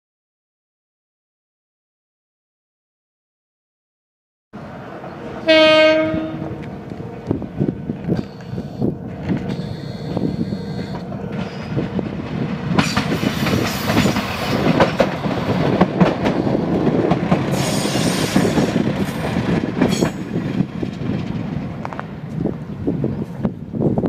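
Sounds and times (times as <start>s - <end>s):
railcar wheels rumbling over joints: 4.6s - 24.0s
high metallic wheel squeal: 9.5s - 11.8s.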